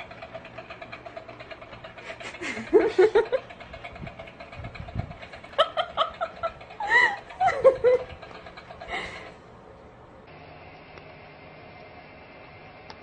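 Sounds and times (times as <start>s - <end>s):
person laughing: 2.0s - 3.5s, 5.4s - 8.2s.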